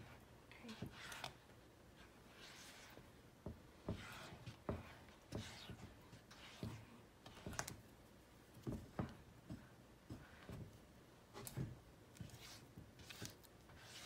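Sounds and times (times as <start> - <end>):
spatula scraping swishes: 12.2 - 14.0.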